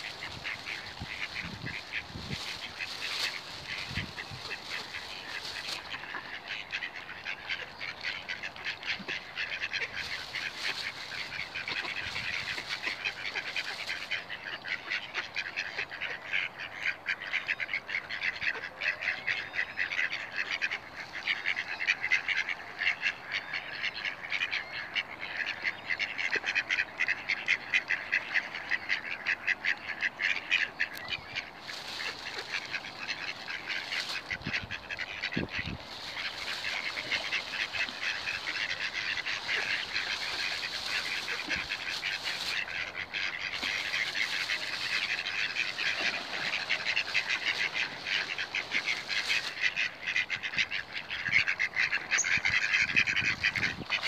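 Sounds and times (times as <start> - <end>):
waterfowl quacking: 0.0 - 54.0.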